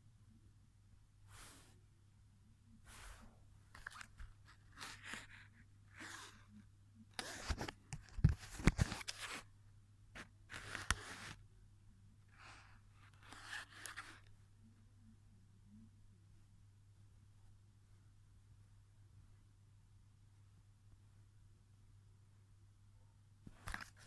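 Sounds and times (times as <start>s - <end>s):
paper crinkling and rustling: 3.7s - 5.4s, 7.2s - 9.4s.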